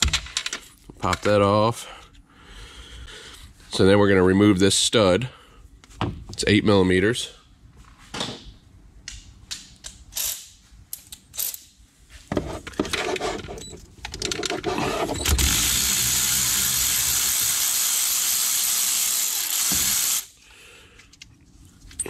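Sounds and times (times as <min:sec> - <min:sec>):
electric ratchet running: 0:15.0 - 0:20.4.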